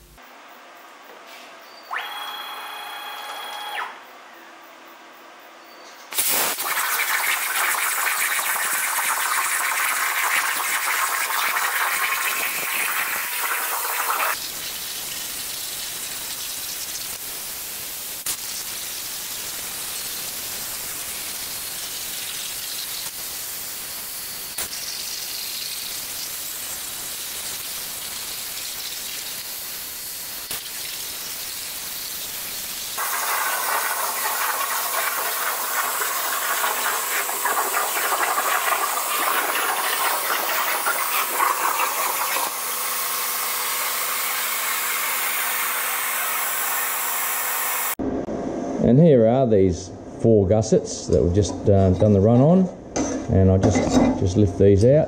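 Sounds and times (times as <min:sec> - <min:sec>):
plasma torch hissing: 0:06.1 - 0:48.0.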